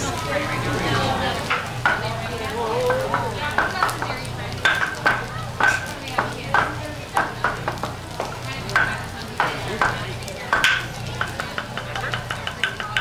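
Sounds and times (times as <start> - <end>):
vegetables sizzling on griddle: 0.0 - 13.0
tools clacking on griddle: 2.8 - 13.0.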